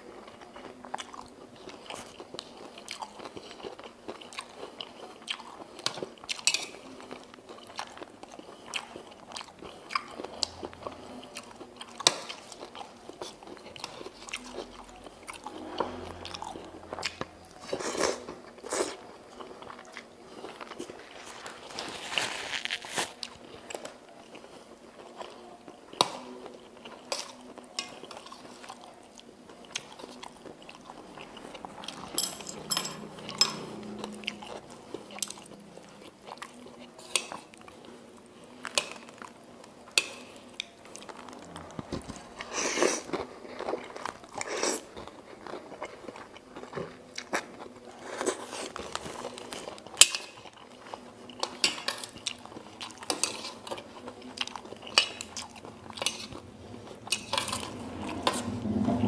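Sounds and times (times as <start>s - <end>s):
chewing and biting: 0.3s - 21.0s, 39.9s - 58.6s.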